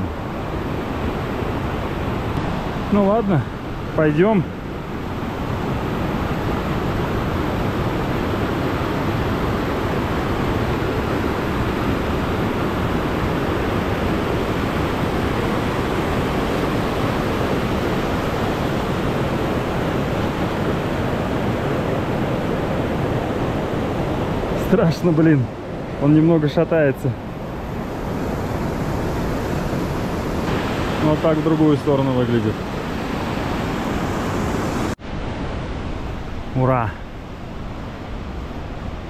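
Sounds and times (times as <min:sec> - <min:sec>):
waterfall rushing: 0:26.0 - 0:37.2.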